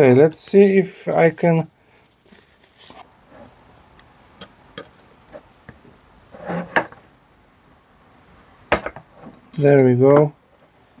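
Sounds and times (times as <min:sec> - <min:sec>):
metal tool scraping metal plate: 0:06.4 - 0:07.0.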